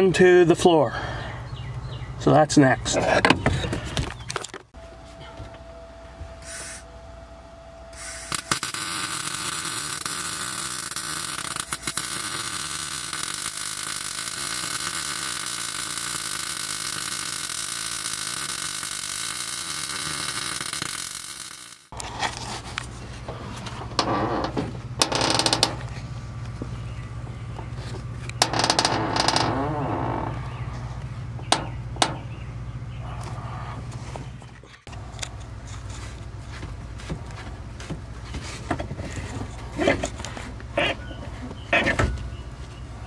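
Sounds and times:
arc welding crackling hiss: 8.0 - 22.0.

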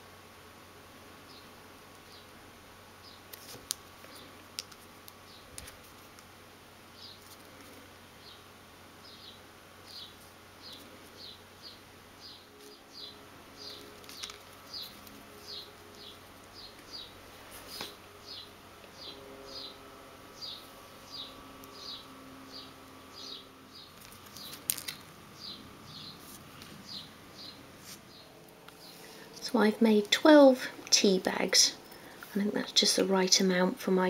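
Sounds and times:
small bird chirping: 9.0 - 17.2, 18.2 - 29.2.

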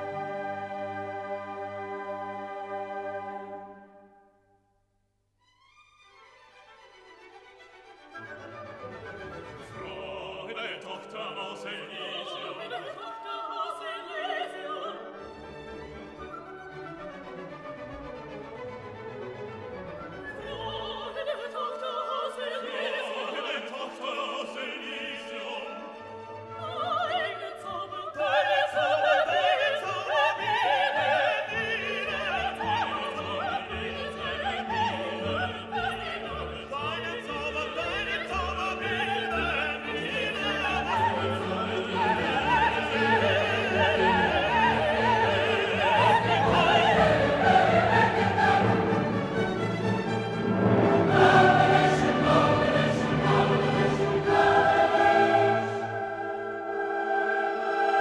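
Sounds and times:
orchestral classical music: 0.0 - 4.6, 5.4 - 58.0
operatic singing: 8.9 - 16.3, 19.9 - 58.0.

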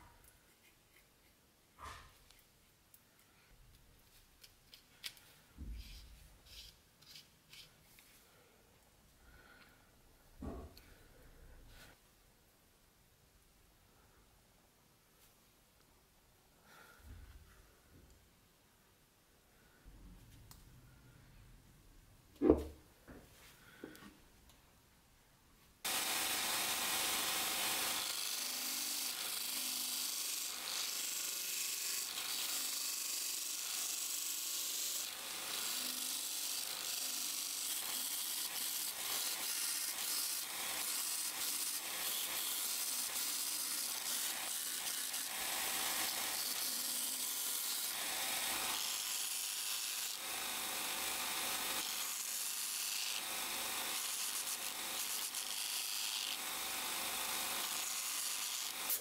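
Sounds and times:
belt sander grinding wood: 25.9 - 59.0.

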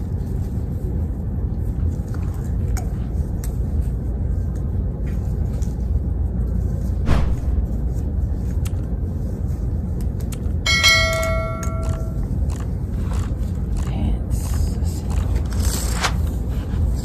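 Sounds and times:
steady low rumble: 0.0 - 17.0
bright bell chime: 10.7 - 12.2.

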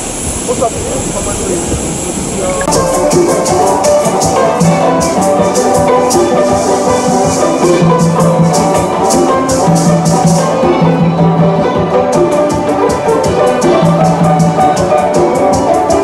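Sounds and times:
low bass note: 0.0 - 3.8
shaker beat: 0.4 - 16.0
hand drum: 1.6 - 16.0
banjo: 2.5 - 16.0
accordion: 2.6 - 16.0.

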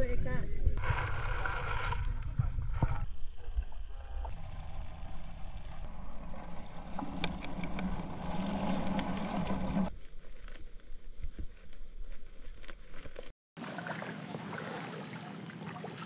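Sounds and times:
muffled underwater rumble: 0.0 - 12.8
water movement: 0.6 - 16.0.

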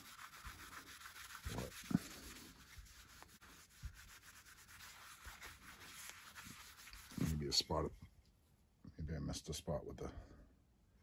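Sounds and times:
cloth rubbing on ceramic tile: 0.0 - 7.7.

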